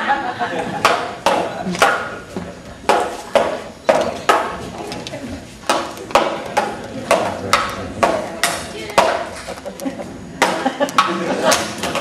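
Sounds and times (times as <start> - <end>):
prop swords clashing: 5.6 - 9.6.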